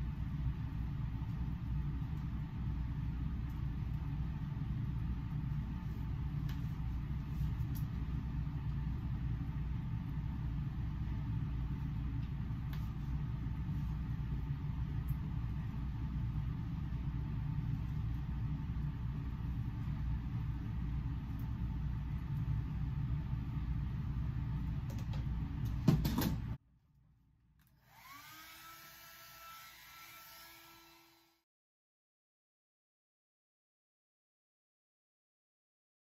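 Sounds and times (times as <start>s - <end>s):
hair dryer blowing: 27.8s - 31.4s.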